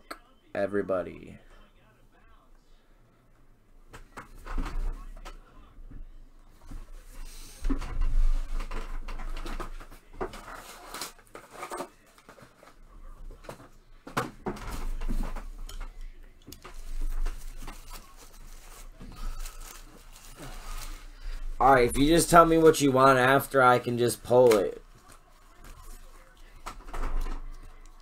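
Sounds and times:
cardboard and plastic rustling: 0:06.7 - 0:28.0.

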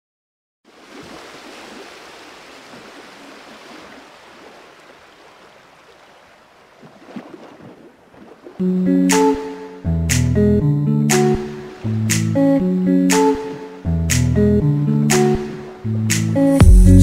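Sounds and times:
guitar music: 0:08.6 - 0:17.0.

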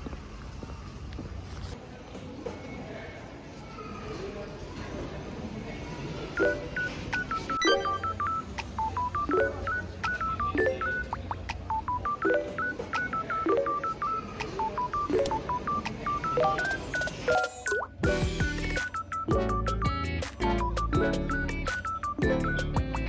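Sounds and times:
bouncy beeping melody: 0:01.8 - 0:19.8.

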